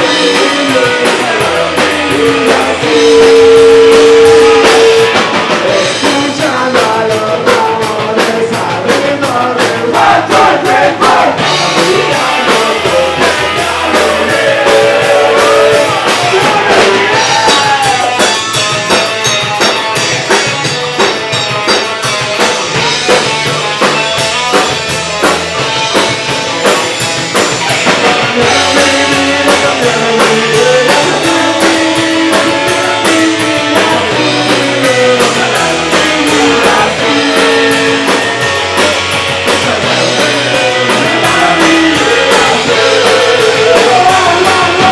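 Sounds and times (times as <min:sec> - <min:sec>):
person singing: 0:00.0 - 0:18.4, 0:27.8 - 0:44.9
punk rock band playing: 0:00.0 - 0:44.9.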